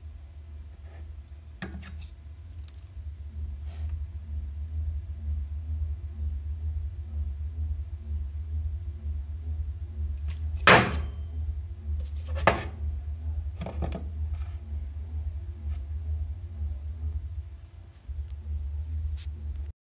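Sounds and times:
steady low hum: 0.0s - 19.7s
loudspeaker knocking and scraping on table: 12.3s - 12.8s, 13.6s - 14.1s.

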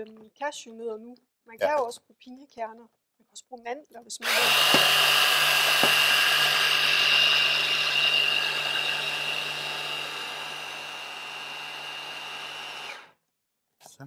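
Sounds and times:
mini chopper motor whine: 4.2s - 13.1s.

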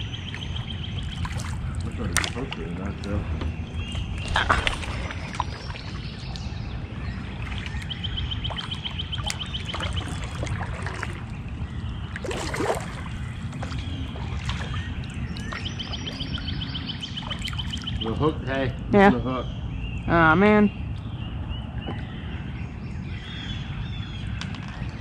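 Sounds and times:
water splashing around hull: 0.0s - 18.4s
bird trilling: 3.5s - 11.2s, 12.2s - 18.5s.

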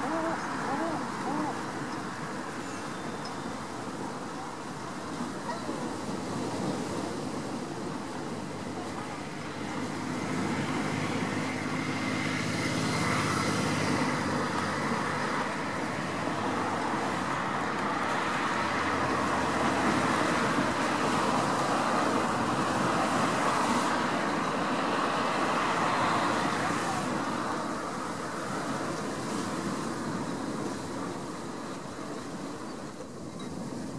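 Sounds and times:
distant motor traffic: 7.3s - 33.7s.

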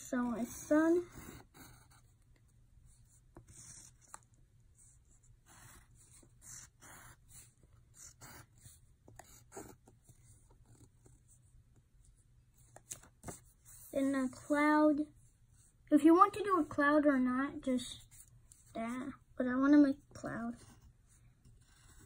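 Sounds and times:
pencil scratching on paper: 0.0s - 2.2s, 2.9s - 11.5s, 20.4s - 22.0s.

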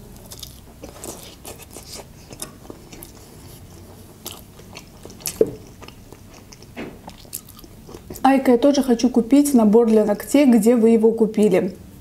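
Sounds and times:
chewing and biting pastry: 0.0s - 8.3s.

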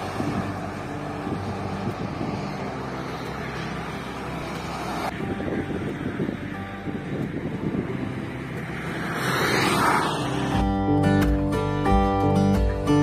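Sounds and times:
wind buffeting on microphone: 0.0s - 3.2s, 4.7s - 10.9s
highway traffic passing: 0.0s - 13.0s.

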